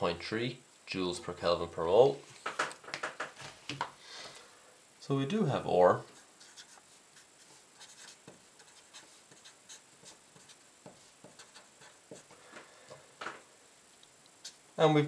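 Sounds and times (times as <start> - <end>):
marker pen writing on paper: 6.1 - 12.3, 14.4 - 14.6.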